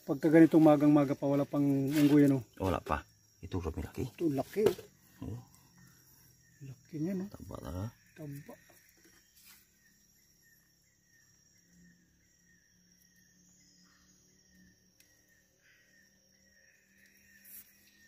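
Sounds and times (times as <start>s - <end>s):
faint high-pitched insect buzz: 0.0s - 18.0s.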